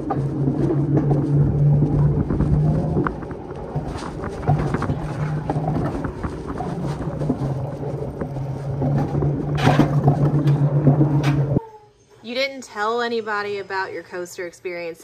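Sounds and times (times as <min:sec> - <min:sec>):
sled wheels humming on rails: 0:00.0 - 0:11.6.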